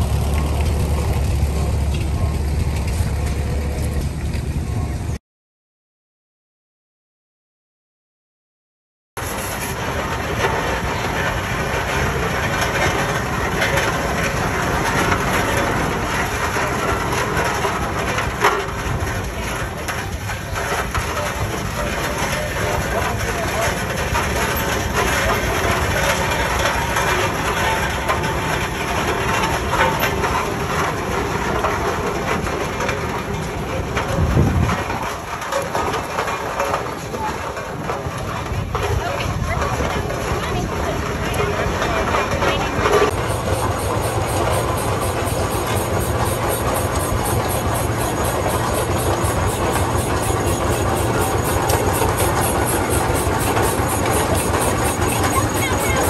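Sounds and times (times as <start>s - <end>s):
iron wheels clattering: 0.0s - 5.0s, 9.2s - 56.0s
steam engine exhaust chuffs: 0.0s - 5.2s, 42.8s - 56.0s
steam traction engine running: 0.0s - 5.2s, 9.2s - 56.0s.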